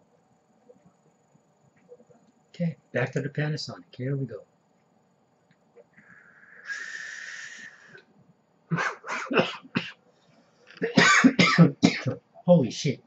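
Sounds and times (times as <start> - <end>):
hissing draw through atomizer: 5.9 - 8.0
man coughing: 8.7 - 10.0, 10.8 - 12.2.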